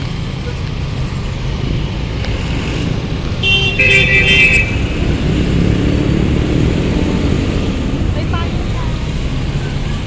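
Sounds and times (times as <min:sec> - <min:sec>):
vehicle engines rumbling: 0:00.0 - 0:10.0
vehicle horn: 0:03.4 - 0:05.0.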